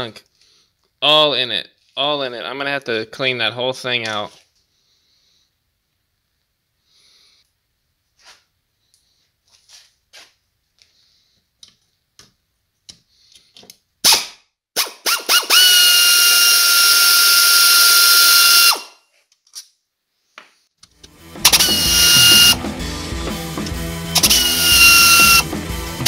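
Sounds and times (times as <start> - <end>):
air ratchet whining: 14.8 - 18.9, 21.4 - 22.6, 23.6 - 25.5.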